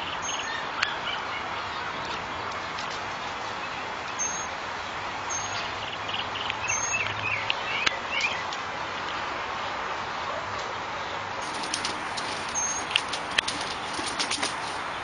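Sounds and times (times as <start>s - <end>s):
outdoor background noise: 0.0s - 15.0s
high bird chirps: 11.4s - 14.1s.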